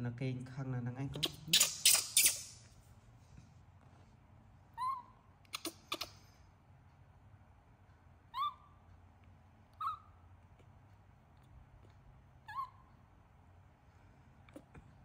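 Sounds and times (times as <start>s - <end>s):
baby monkey coo calls: 1.2s - 2.6s, 4.8s - 6.3s, 8.3s - 8.8s, 9.7s - 10.2s, 12.4s - 12.9s.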